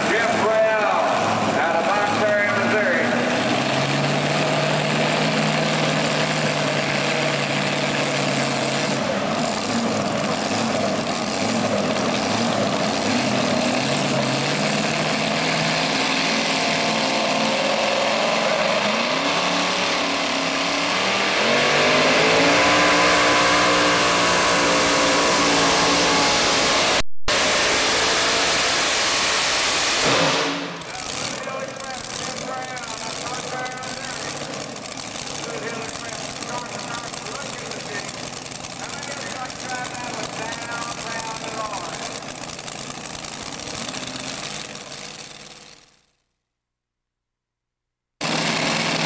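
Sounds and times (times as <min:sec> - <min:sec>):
truck engine idling and revving: 0:00.0 - 0:46.2, 0:48.2 - 0:49.0.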